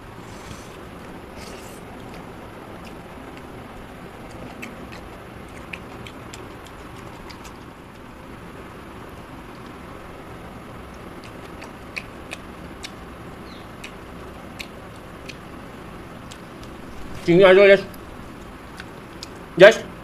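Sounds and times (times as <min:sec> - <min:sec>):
steady background noise: 0:00.0 - 0:20.0
chewing and mouth clicks: 0:01.3 - 0:08.2, 0:10.9 - 0:17.3, 0:17.9 - 0:19.5.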